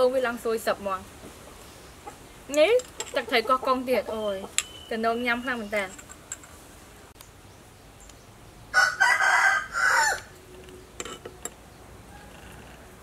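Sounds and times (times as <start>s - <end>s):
rooster crowing: 8.7s - 10.4s, 12.0s - 13.0s.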